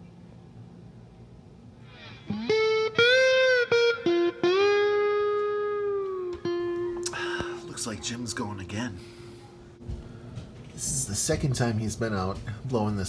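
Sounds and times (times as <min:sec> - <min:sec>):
guitar with bending notes: 0:01.8 - 0:09.8.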